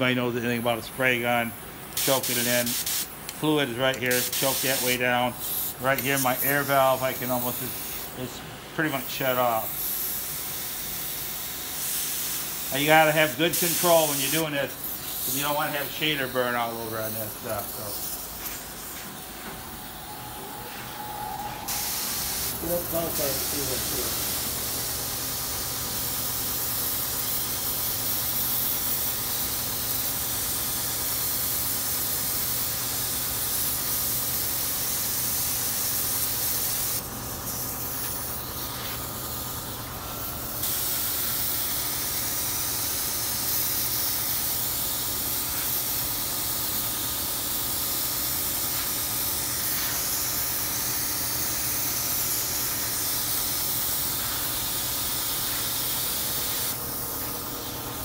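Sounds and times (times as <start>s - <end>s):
spray gun hissing: 2.0s - 3.3s, 3.9s - 8.3s, 8.9s - 58.0s.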